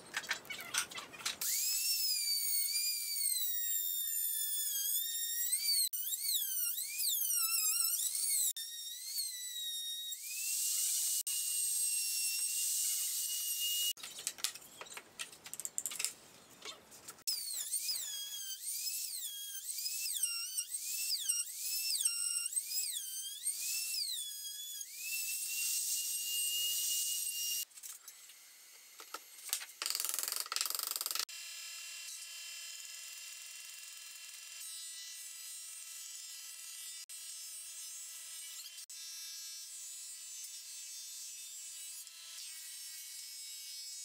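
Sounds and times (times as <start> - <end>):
router whining: 1.4 - 14.0.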